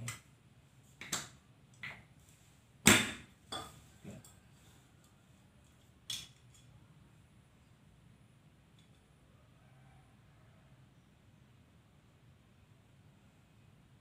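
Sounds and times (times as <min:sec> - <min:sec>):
small objects clicking and knocking: 0:05.6 - 0:06.7.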